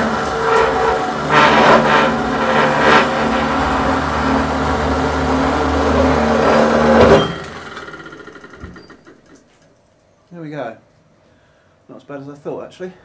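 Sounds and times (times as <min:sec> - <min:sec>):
cold saw cutting steel: 0:00.0 - 0:08.9.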